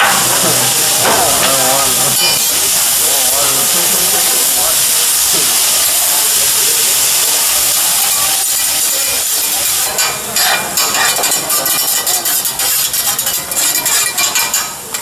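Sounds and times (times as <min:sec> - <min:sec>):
vegetables sizzling on a griddle: 0:00.0 - 0:15.0
metal spatulas scraping a steel plate: 0:09.4 - 0:15.0.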